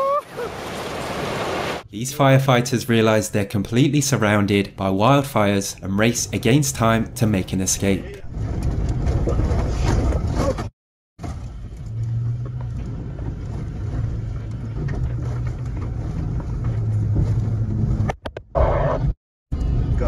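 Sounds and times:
truck engine running: 11.2 - 18.1
rushing road noise: 11.2 - 18.2.

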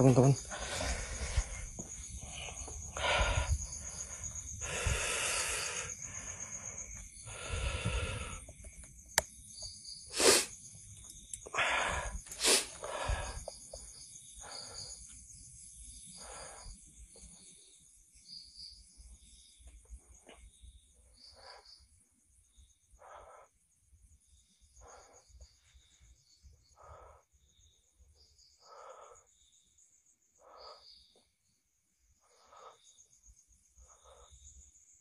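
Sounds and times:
person breathing heavily: 0.4 - 8.6, 11.5 - 15.1.

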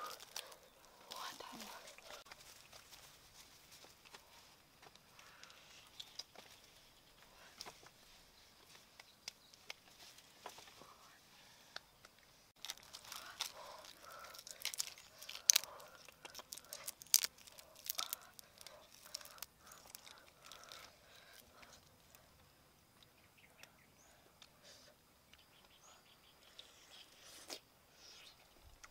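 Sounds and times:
prawn shells cracking and peeling: 0.0 - 2.8, 12.6 - 22.2.

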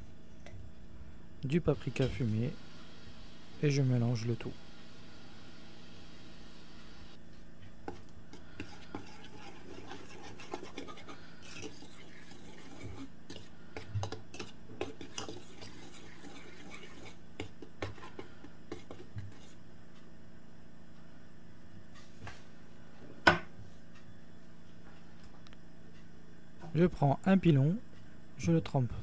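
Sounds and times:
whisk stirring in ceramic bowl: 7.9 - 19.6.

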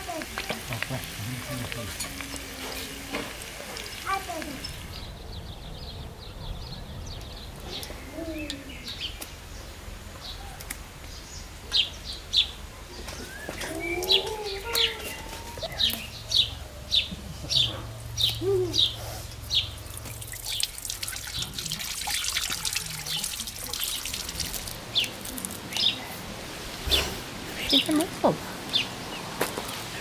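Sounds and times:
tap water running: 0.0 - 4.8, 19.4 - 25.8
small birds chirping: 0.1 - 30.0.

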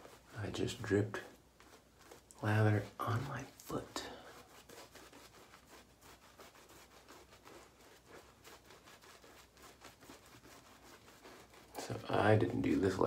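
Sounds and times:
shaving brush swishing lather: 0.0 - 13.0.

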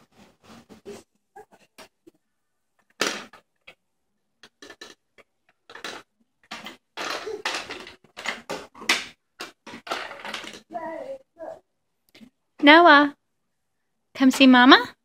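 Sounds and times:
plastic toys clattering: 2.8 - 3.8, 4.4 - 11.2.

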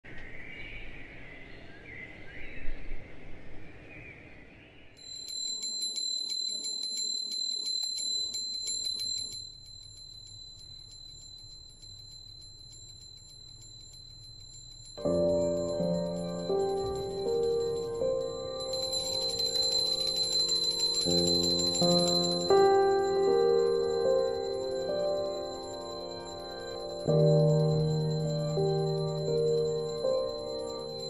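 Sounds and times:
birds chirping faintly: 7.6 - 31.0
brass hand bell ringing rapidly: 12.4 - 31.0.

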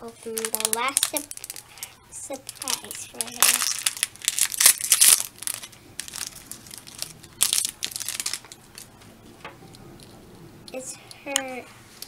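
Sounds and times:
foil wrapper crinkling and tearing: 0.2 - 8.9.

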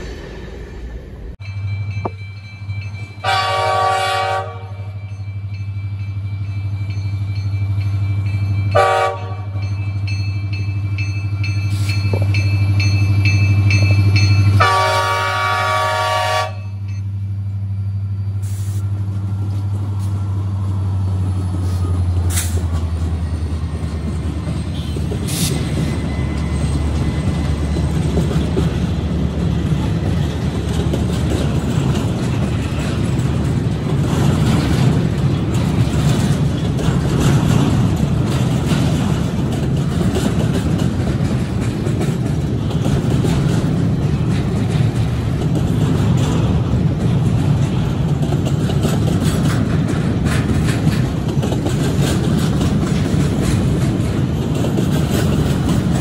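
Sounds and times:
train wheels rumbling on rail: 0.0 - 56.0
multi-tone air horn blasts: 3.2 - 4.8, 8.8 - 9.5, 14.6 - 16.7
diesel engines droning: 10.8 - 56.0.

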